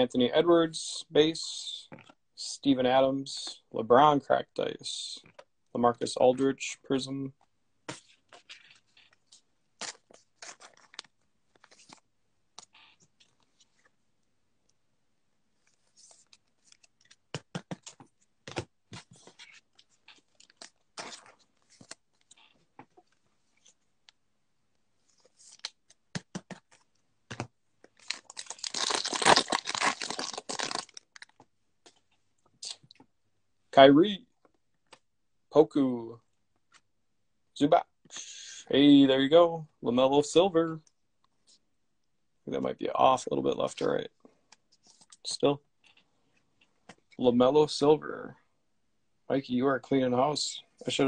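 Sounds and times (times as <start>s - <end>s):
wrapper crinkling: 9.8s - 12.0s, 27.9s - 31.4s.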